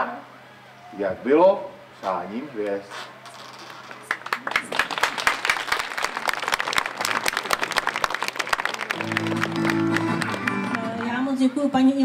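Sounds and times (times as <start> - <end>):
audience applause: 4.1 - 11.2.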